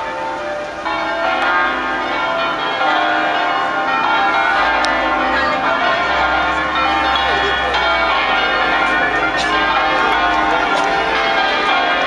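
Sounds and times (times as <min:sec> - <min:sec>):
tuned church bells ringing: 0:00.0 - 0:12.0.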